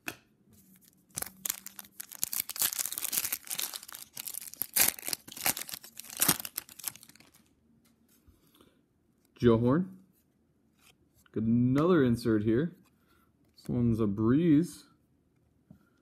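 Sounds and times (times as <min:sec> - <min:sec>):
foil wrapper tearing and crinkling: 0:01.2 - 0:07.5.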